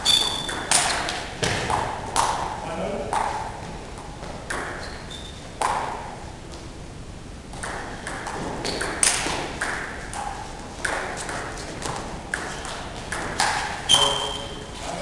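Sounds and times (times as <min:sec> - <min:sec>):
table tennis ball hits: 0:00.0 - 0:03.5, 0:04.4 - 0:04.9, 0:05.6 - 0:06.1, 0:07.6 - 0:13.8.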